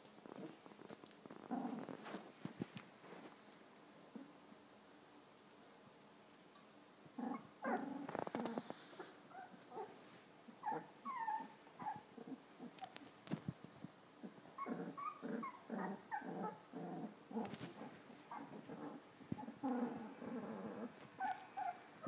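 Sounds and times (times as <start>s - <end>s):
puppies growling and whimpering: 1.3s - 2.2s, 7.2s - 13.0s, 14.2s - 22.0s.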